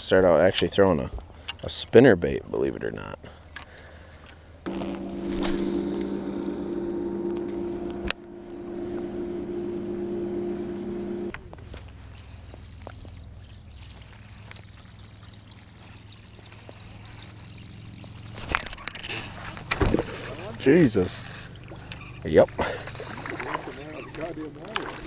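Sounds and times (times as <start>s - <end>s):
boat motor humming: 4.7s - 11.6s
low faint hum: 4.7s - 18.1s.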